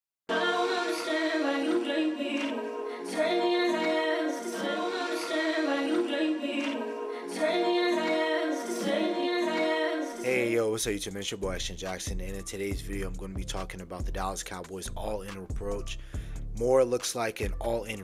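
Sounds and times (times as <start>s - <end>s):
intro music with singing voice: 0.3s - 14.1s.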